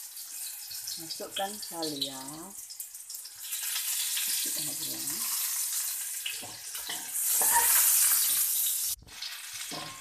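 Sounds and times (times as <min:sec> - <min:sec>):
garlic sizzling in hot oil: 0:00.0 - 0:10.0
metal spatula scraping wok: 0:03.4 - 0:10.0.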